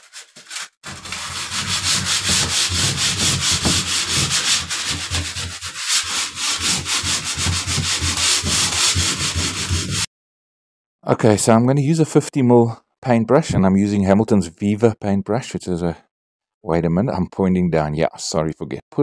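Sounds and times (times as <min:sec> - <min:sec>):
sandpaper rubbing on wood: 0:00.0 - 0:10.1.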